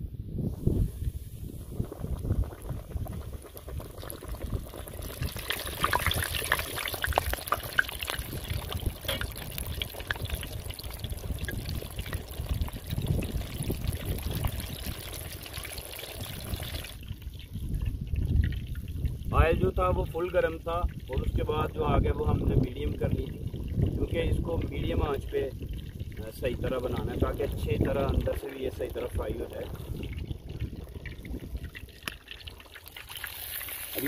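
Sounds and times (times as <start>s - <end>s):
fish sizzling in hot oil: 1.9s - 19.2s, 30.0s - 34.0s.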